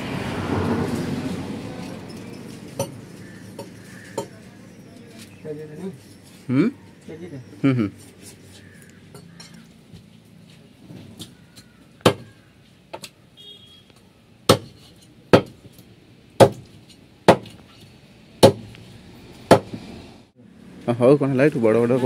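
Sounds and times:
cleaver chopping on wooden block: 0:12.0 - 0:12.4, 0:14.5 - 0:15.7, 0:16.4 - 0:17.6, 0:18.4 - 0:18.7, 0:19.5 - 0:19.8.

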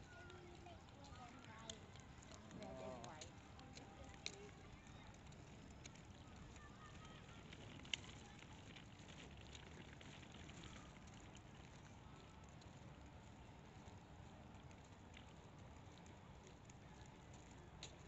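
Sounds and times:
small clicks: 0:00.2 - 0:11.9.

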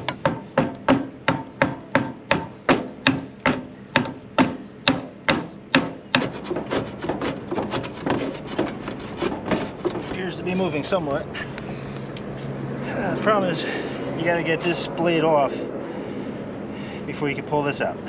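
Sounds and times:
fan blade scraping on shaft: 0:05.3 - 0:15.7.

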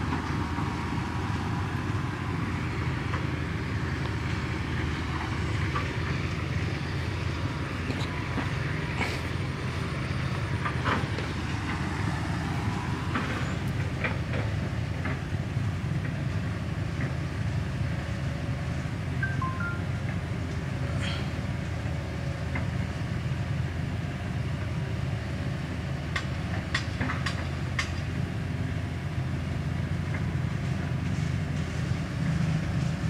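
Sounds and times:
water pump engine droning: 0:00.0 - 0:15.0.

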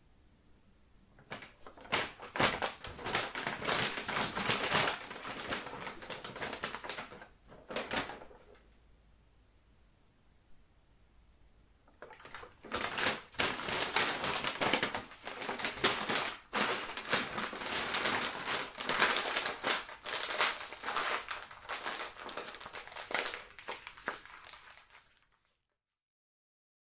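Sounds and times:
stiff paper crumpling: 0:01.2 - 0:08.6, 0:12.0 - 0:25.7.

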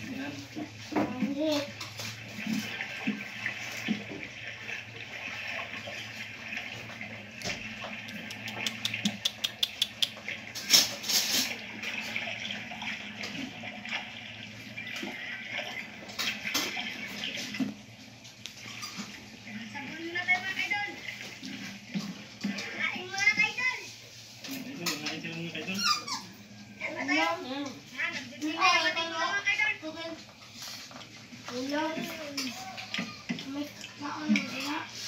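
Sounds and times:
puppy chewing and smacking: 0:07.8 - 0:10.4.

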